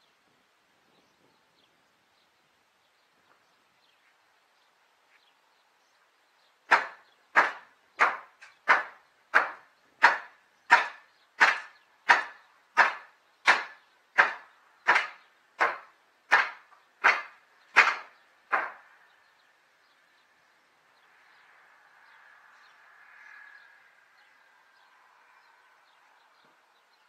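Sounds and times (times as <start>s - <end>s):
hammer striking wooden boards: 6.7s - 18.9s.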